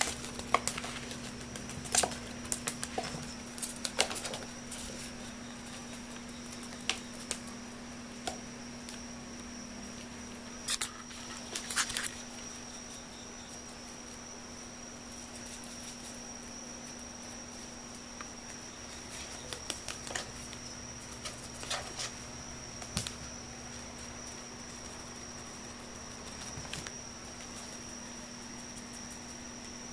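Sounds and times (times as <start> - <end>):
electric fan humming and whining: 0.0 - 29.9.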